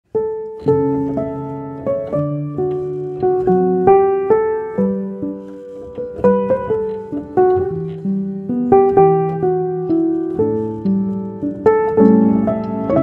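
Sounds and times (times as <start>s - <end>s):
gentle piano music: 0.1s - 13.0s.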